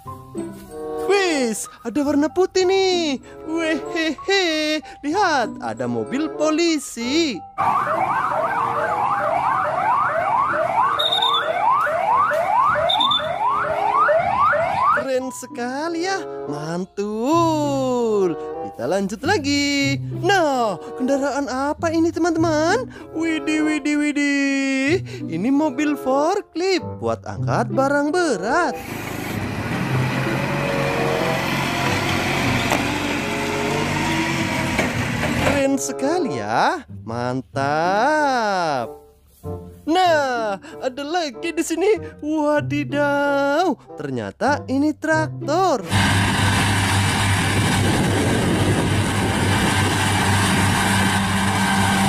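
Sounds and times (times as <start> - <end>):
police siren: 7.6 - 15.1
short high beep: 11.0 - 11.6, 12.9 - 13.4
forklift engine humming: 28.8 - 35.6, 45.9 - 52.0.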